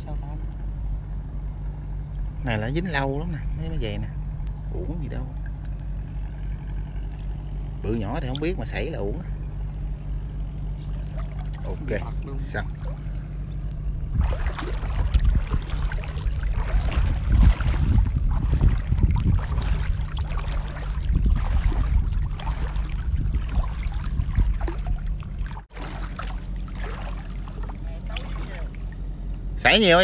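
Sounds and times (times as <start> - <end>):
boat motor humming: 0.0 - 30.0
rushing water splashing: 14.1 - 29.0.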